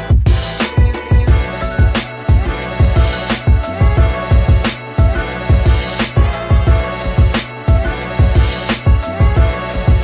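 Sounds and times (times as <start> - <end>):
bass-heavy background music: 0.0 - 10.0.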